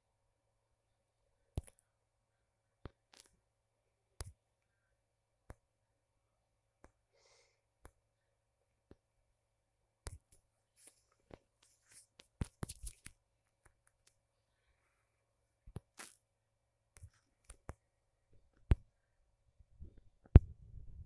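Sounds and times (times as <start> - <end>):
faint clicks and taps: 1.5 - 1.9, 10.0 - 14.2, 16.9 - 19.0.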